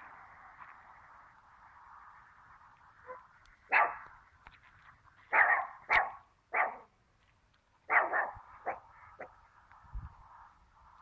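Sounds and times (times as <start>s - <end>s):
dog barking: 3.0s - 4.0s, 5.3s - 6.9s, 7.9s - 9.3s.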